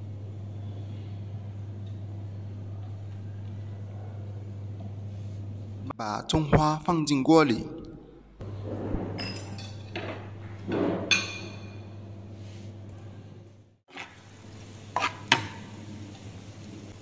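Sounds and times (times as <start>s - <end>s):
metal spatula stirring in frying pan: 13.9s - 15.6s.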